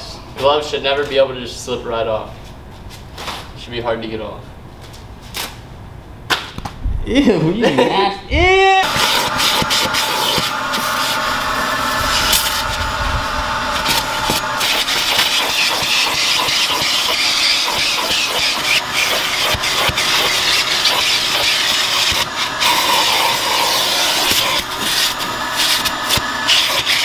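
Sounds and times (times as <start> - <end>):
vacuum cleaner suction and whine: 8.6 - 27.0
grit rattling up hose: 13.8 - 27.0.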